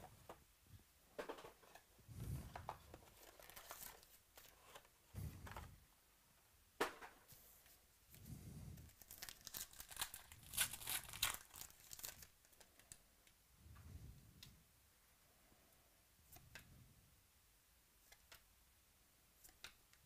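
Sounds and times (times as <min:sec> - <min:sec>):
foil wrapper tearing and crinkling: 0:09.0 - 0:12.3.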